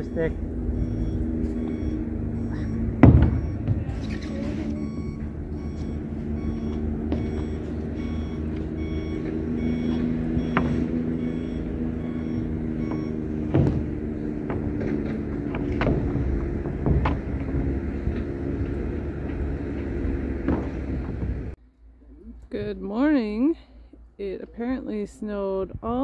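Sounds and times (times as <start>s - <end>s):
reversing alarm beeping: 0.0s - 21.0s
engine hum: 0.0s - 26.0s
sharp knocks from roofing work: 2.8s - 4.0s, 9.2s - 11.4s, 12.1s - 21.5s.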